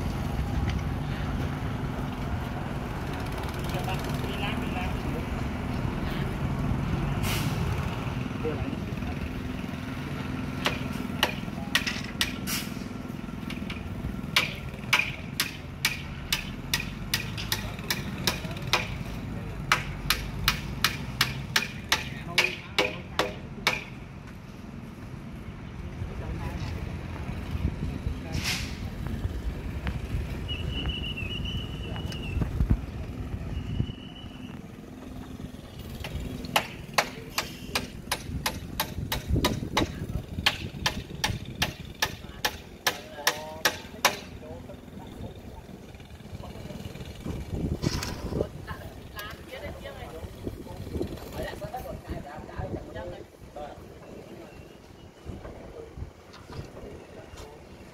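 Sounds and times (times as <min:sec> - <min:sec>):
low engine hum: 0:00.0 - 0:21.6, 0:23.5 - 0:42.0
sharp hammer-like knocks: 0:10.6 - 0:12.5, 0:13.6 - 0:19.0, 0:19.7 - 0:24.0, 0:36.0 - 0:44.3.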